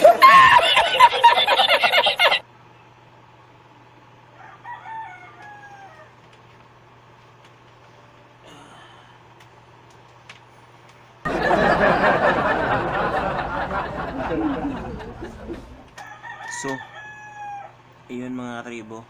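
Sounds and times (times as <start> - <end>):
faint steady hum: 0.0 - 16.2
man chuckling: 11.3 - 15.9.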